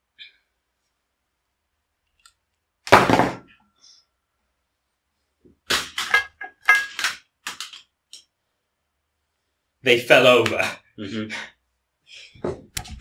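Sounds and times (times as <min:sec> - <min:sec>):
headphones thumping on desk: 0:02.9 - 0:03.5.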